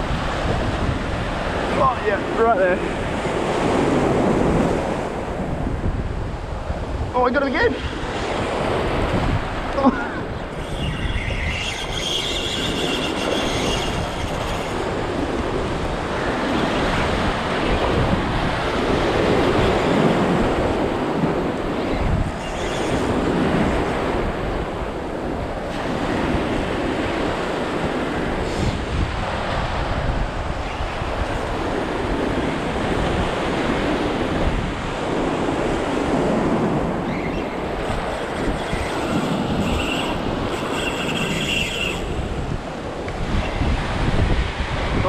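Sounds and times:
wind buffeting microphone: 0.0 - 45.0
fishing reel whirring: 10.5 - 15.1, 22.4 - 23.2, 38.0 - 42.2.

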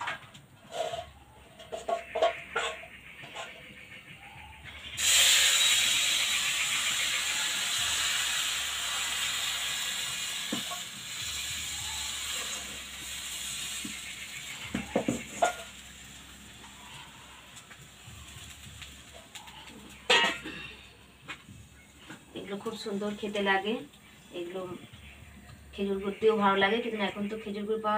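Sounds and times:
batter sizzling in hot pan: 4.9 - 20.5.

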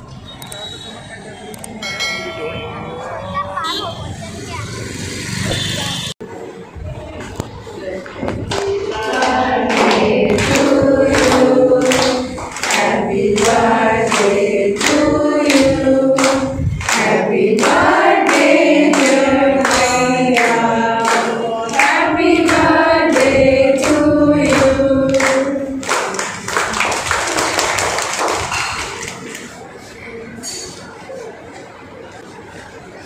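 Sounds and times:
group of people singing: 7.9 - 26.1
hand-clapping: 8.5 - 29.2.

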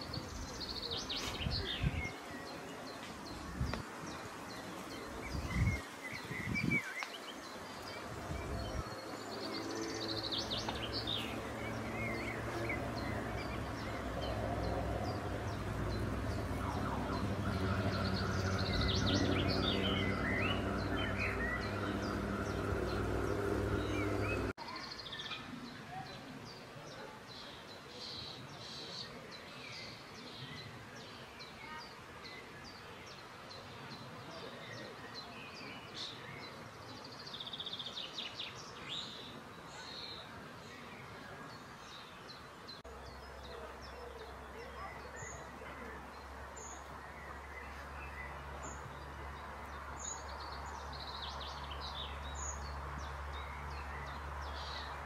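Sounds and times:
songbirds chirping and singing: 0.0 - 55.0
steady low hum: 10.4 - 24.5.

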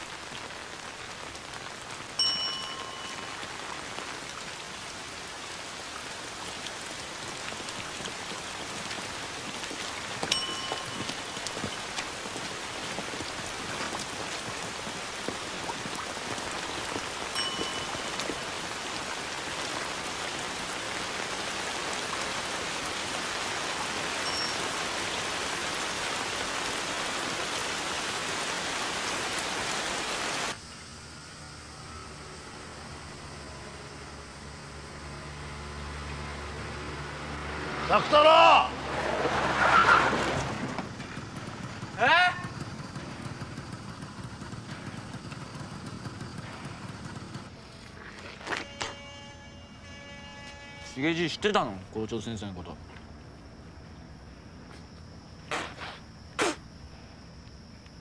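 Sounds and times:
rain on umbrellas and street: 0.0 - 30.6, 33.4 - 49.0
short ringing tone: 2.2 - 3.4, 10.3 - 11.2, 17.4 - 18.2, 48.6 - 51.0.

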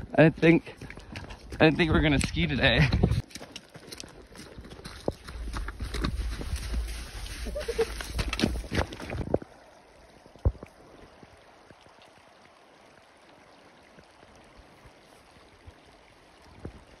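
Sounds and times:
footsteps on rocky ground: 0.0 - 9.5
distant waterfall and stream: 0.0 - 17.0.

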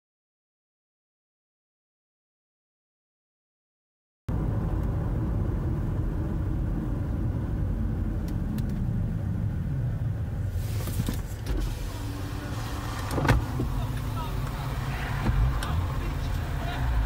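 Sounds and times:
car engine and road noise: 4.3 - 17.0.

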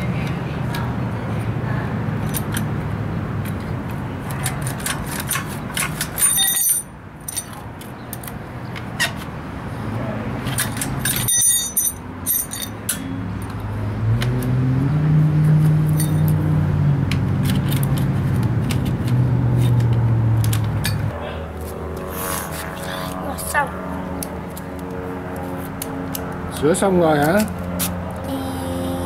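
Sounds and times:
vehicle engine humming: 0.0 - 29.0
metal tool clicking and scraping: 4.3 - 8.4, 10.4 - 13.6, 15.9 - 16.4
bright metallic jingles: 6.0 - 7.6, 10.6 - 13.2, 15.9 - 16.4.

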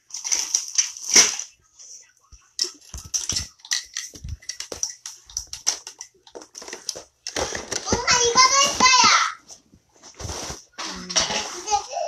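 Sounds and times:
plastic packaging crinkling: 0.0 - 1.6.

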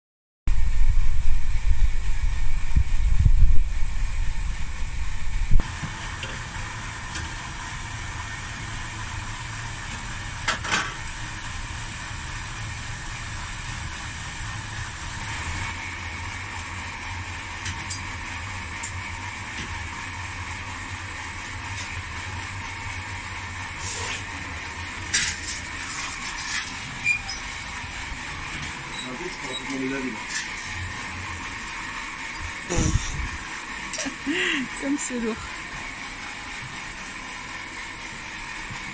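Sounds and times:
low rumble: 0.5 - 5.6, 32.7 - 33.4
furnace and blower roar: 0.5 - 38.9.

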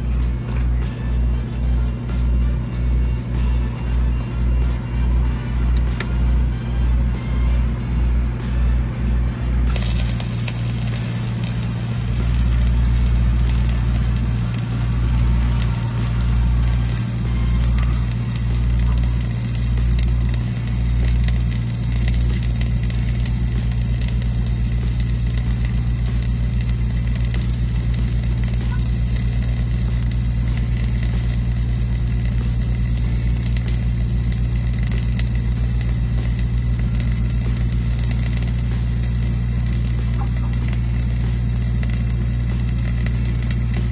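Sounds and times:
welding machine engine drone: 0.0 - 43.9
arc welding crackling: 9.6 - 43.9.

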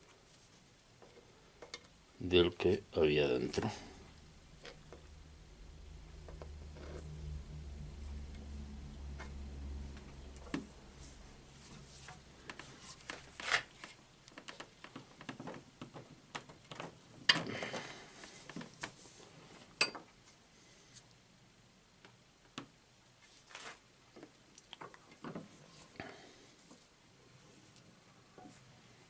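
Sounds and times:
low hum: 1.2 - 14.3.

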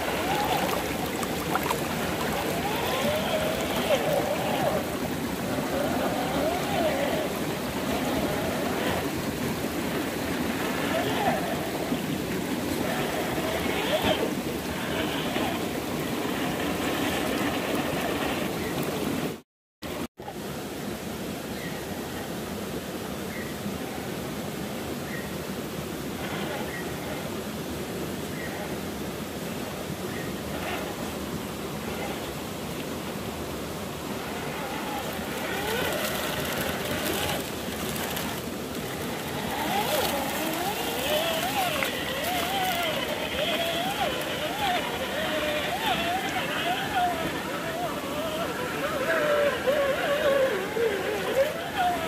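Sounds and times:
faint voices: 0.0 - 17.1, 34.0 - 52.0
river water rushing: 0.0 - 52.0.

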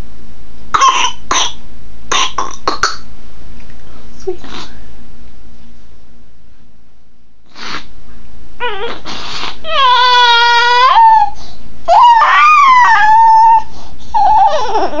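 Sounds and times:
baby coughing: 0.8 - 3.1
baby crying: 8.6 - 15.0.

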